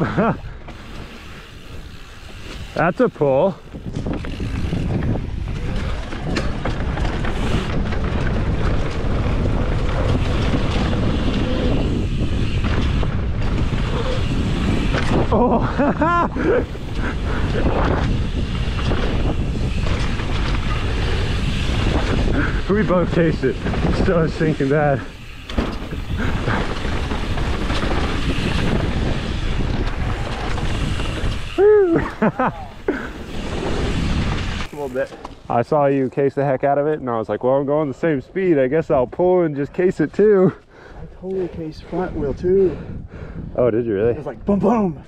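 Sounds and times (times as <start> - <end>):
wind buffeting microphone: 0.0 - 35.1, 38.4 - 45.0
tyres rumbling over dirt: 0.0 - 35.9
bike clattering: 0.0 - 36.0.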